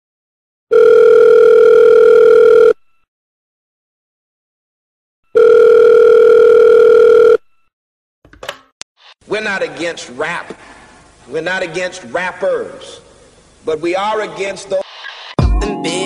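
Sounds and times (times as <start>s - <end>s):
telephone ringback tone: 0.7s - 3.0s, 5.3s - 7.7s.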